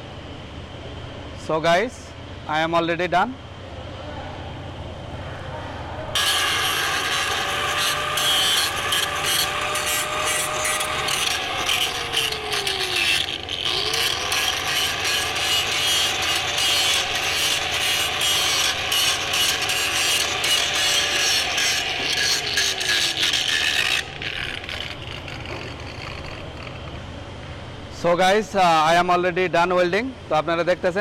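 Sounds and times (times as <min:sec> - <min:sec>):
angle grinder scraping metal: 0:06.2 - 0:27.0.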